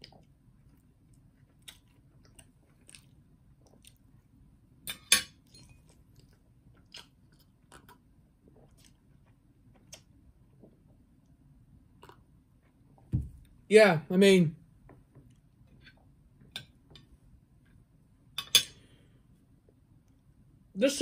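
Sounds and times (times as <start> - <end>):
chewing food: 0.0 - 4.5, 5.4 - 12.9.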